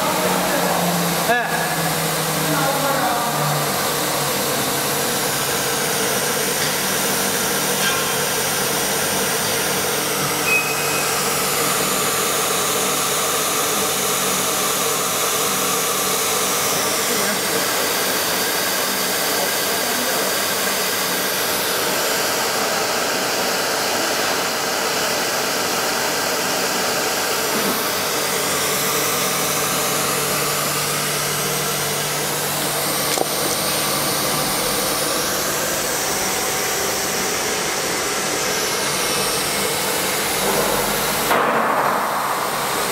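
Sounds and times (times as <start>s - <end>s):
router machine whining and rushing: 0.0s - 41.4s
high-pitched sliding tones: 10.4s - 11.8s.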